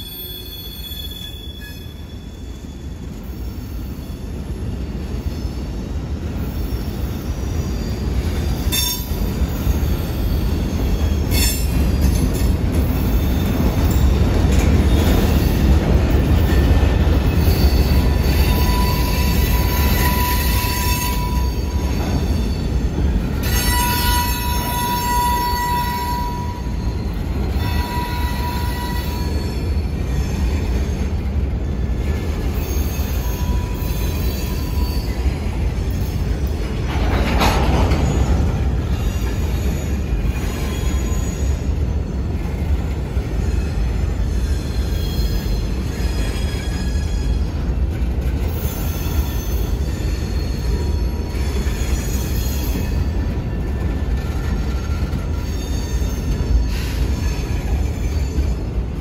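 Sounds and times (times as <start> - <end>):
train cars rumbling on rails: 0.0 - 59.0.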